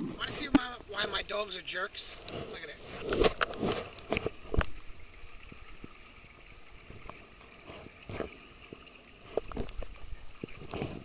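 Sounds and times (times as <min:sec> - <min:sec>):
knocks and scrapes: 0:02.1 - 0:04.7, 0:09.2 - 0:11.0.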